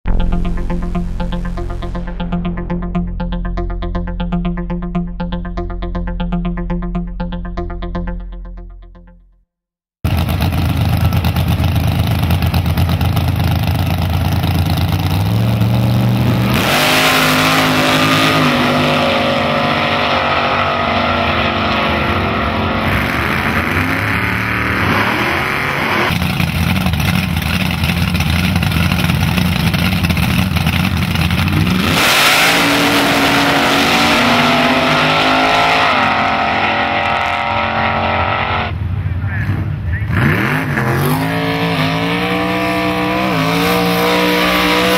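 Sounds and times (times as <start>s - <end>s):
drag car engines revving: 10.1s - 44.9s.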